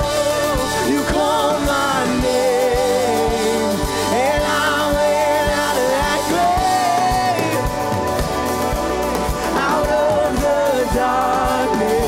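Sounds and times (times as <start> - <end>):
keyboards: 0.0 - 12.0.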